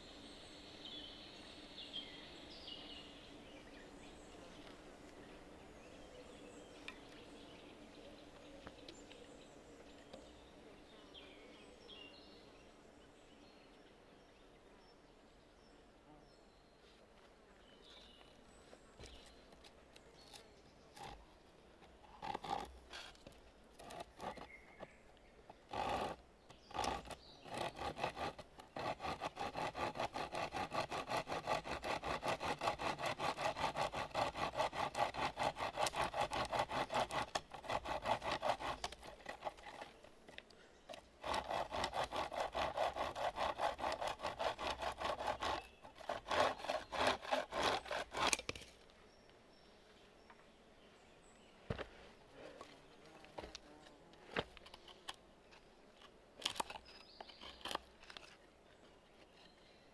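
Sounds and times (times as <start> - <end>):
hand saw cutting wood: 20.2 - 48.7, 56.4 - 58.4.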